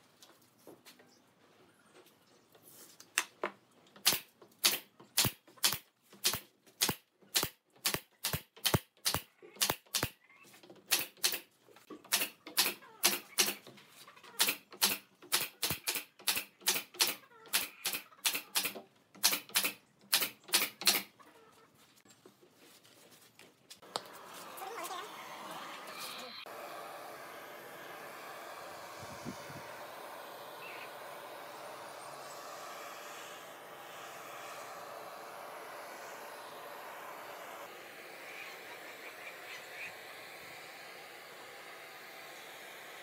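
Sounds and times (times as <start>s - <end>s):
nail gun firing: 4.0s - 10.2s, 10.8s - 13.7s, 14.4s - 21.1s.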